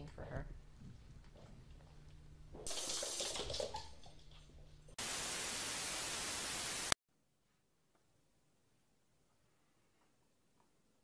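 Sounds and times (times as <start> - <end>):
static hiss: 5.0 - 7.0.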